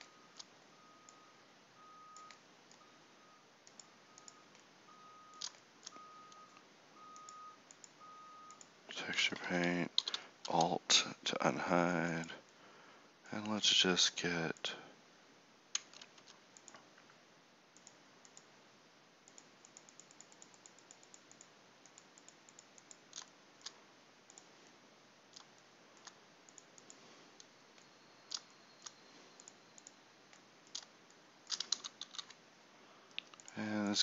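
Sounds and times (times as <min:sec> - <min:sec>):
mouse and keyboard clicks: 0:05.3 - 0:06.4, 0:15.8 - 0:16.9, 0:19.3 - 0:24.5, 0:25.3 - 0:32.4, 0:33.1 - 0:33.6.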